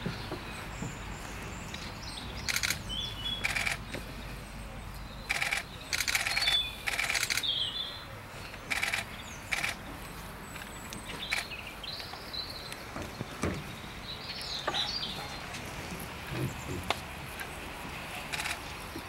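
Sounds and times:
birds chirping faintly: 0.0 - 19.0
camera shutter clicks: 2.5 - 2.8, 3.4 - 3.8, 5.3 - 7.5, 8.7 - 9.8, 18.3 - 18.6.

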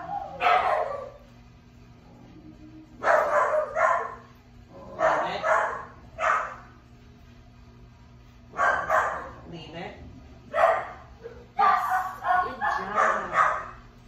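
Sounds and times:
dog barking: 0.0 - 1.2, 3.0 - 4.3, 4.9 - 6.7, 8.5 - 9.4, 10.5 - 13.8.

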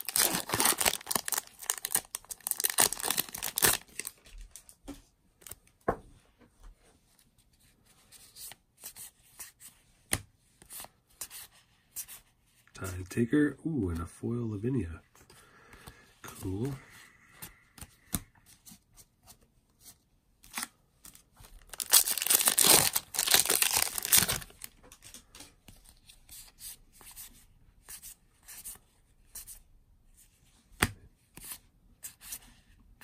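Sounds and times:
wrapper tearing with crinkling rip: 0.0 - 4.2, 21.6 - 24.7.

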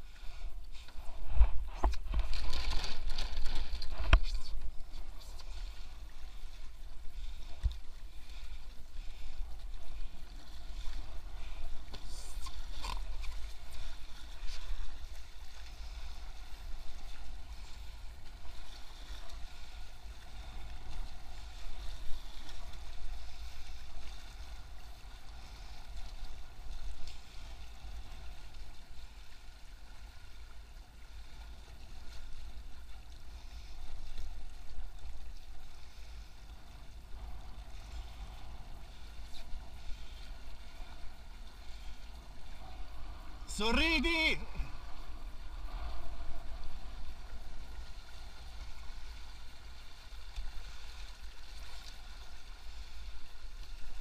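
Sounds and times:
water splashing along boat hulls: 0.0 - 54.0.

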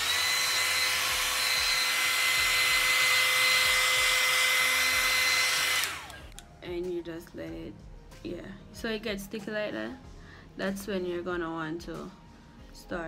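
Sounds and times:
hair dryer running: 0.0 - 6.4.

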